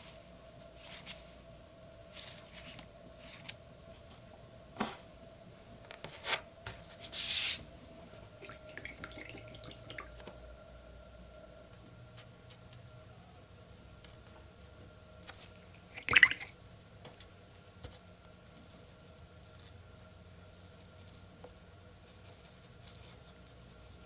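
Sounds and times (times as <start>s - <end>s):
paper rubbing on table: 6.1s - 7.6s.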